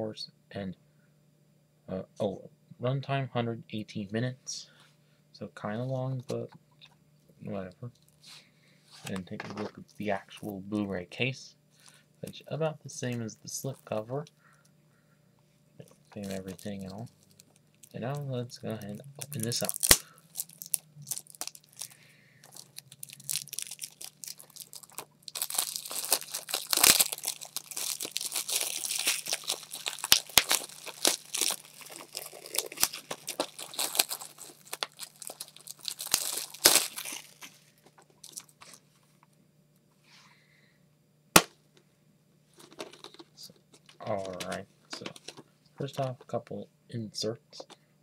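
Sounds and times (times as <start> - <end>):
plastic wrap tearing and crinkling: 16.1 - 38.8.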